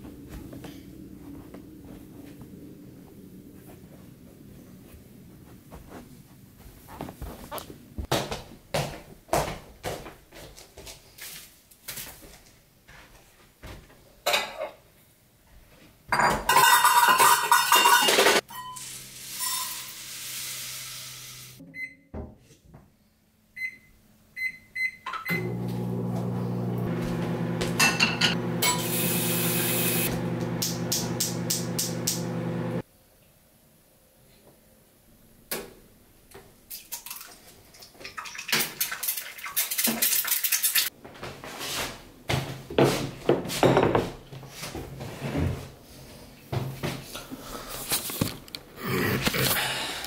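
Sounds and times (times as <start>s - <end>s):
kitchen clicks and knocks: 16.2s - 18.4s
appliance humming: 25.3s - 32.8s.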